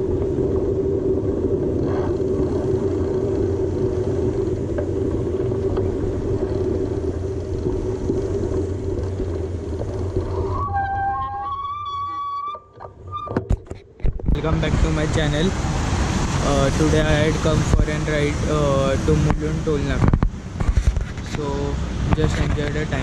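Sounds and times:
road and wind rumble: 0:00.0 - 0:23.0
vehicle engine drone: 0:00.0 - 0:23.0
short pitched tone: 0:10.4 - 0:13.6.

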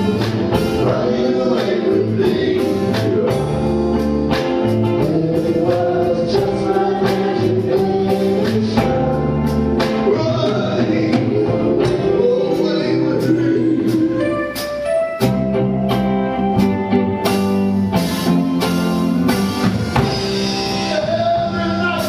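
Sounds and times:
vocal group singing in harmony: 0:00.0 - 0:14.8
drums keeping a steady beat: 0:00.0 - 0:22.0
electric guitars: 0:00.0 - 0:22.0.

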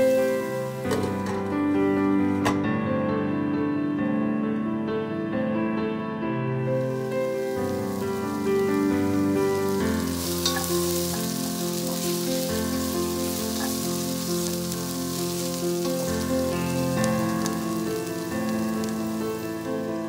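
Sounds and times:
onions sizzling in pot: 0:00.0 - 0:02.4, 0:06.7 - 0:20.0
soft background music: 0:00.0 - 0:20.0.

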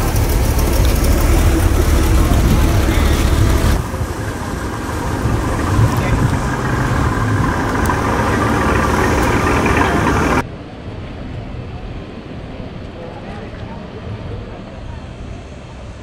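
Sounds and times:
background voices: 0:00.0 - 0:10.4
car engine at low speed: 0:00.0 - 0:10.4.

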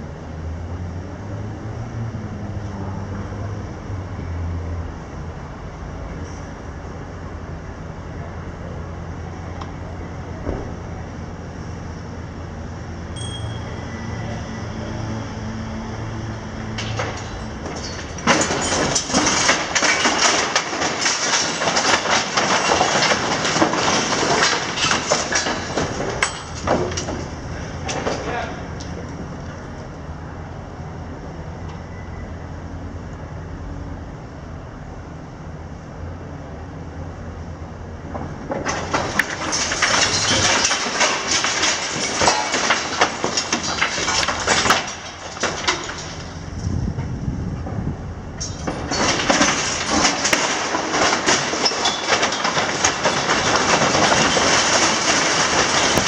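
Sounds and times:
diesel excavator engine hum: 0:00.0 - 0:56.0
concrete breaking and crunching: 0:16.8 - 0:27.3, 0:38.6 - 0:46.3, 0:48.5 - 0:56.0
rubble crashing down: 0:16.8 - 0:28.5, 0:38.4 - 0:46.4, 0:48.4 - 0:56.0.

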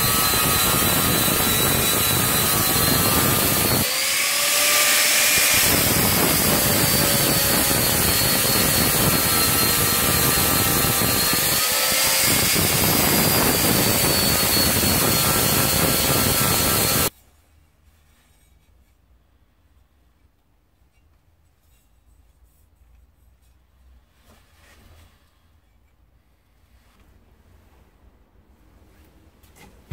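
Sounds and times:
angle grinder grinding steel: 0:00.0 - 0:17.1.

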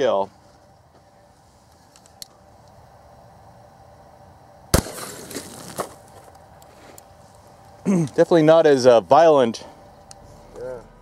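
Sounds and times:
shotgun shot: 0:04.7 - 0:05.9.

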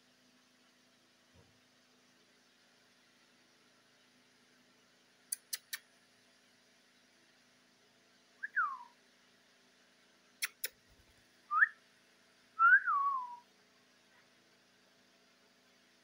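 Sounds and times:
sharp clicks: 0:05.3 - 0:05.9, 0:10.4 - 0:10.8.

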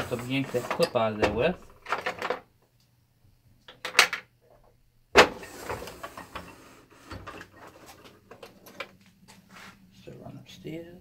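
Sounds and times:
tools clattering and scraping: 0:00.0 - 0:02.4, 0:05.2 - 0:09.7.

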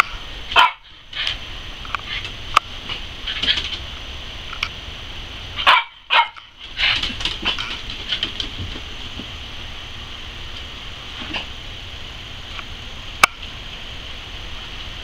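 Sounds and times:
small dogs barking: 0:00.5 - 0:01.4, 0:05.6 - 0:08.3.

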